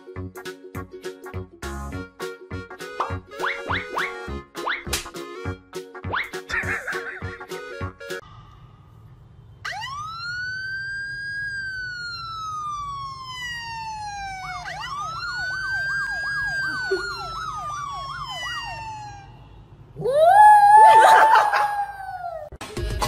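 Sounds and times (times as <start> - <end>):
police siren wailing: 9.6 - 22.5.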